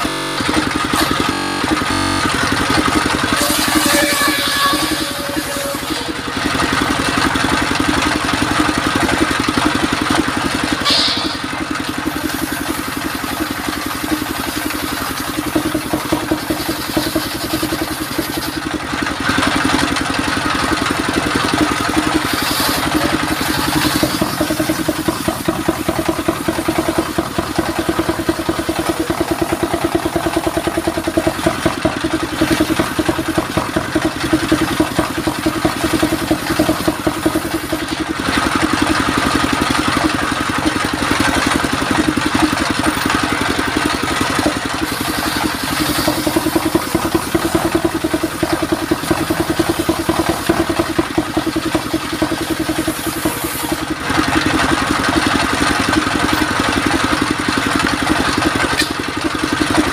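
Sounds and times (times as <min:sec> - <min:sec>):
stationary engine running: 0:00.0 - 0:59.9
circular saw ripping wood: 0:02.6 - 0:06.3, 0:21.7 - 0:25.6.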